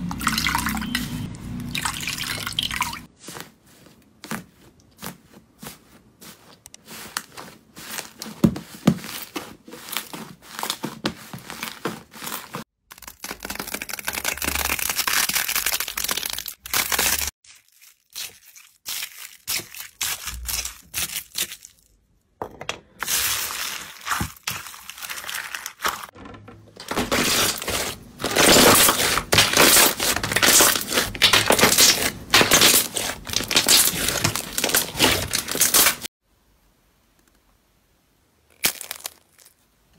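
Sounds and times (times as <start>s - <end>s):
beads stirred in a bowl: 4.9s - 12.6s, 17.2s - 21.9s, 27.0s - 36.1s.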